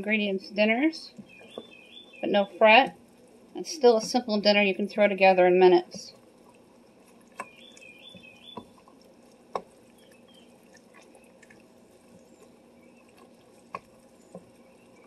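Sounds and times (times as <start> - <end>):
wooden spoon stirring thick mixture: 3.0 - 15.0.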